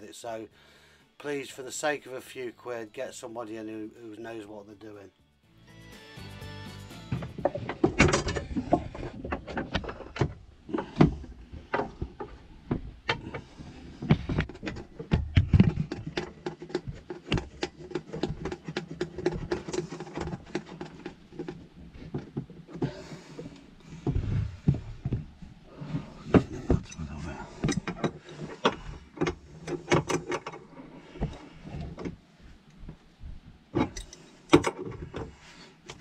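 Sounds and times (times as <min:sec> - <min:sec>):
tools and pipe fittings clicking: 0:33.8 - 0:35.3.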